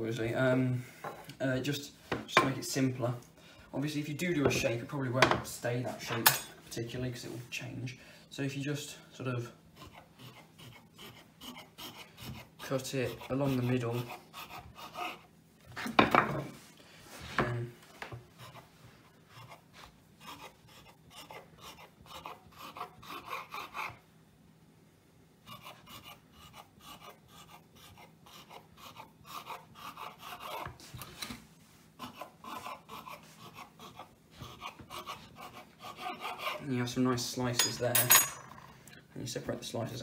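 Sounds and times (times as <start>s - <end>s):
knife scraping wooden board: 9.8s - 16.0s, 19.3s - 24.0s, 25.5s - 31.4s, 32.0s - 36.6s.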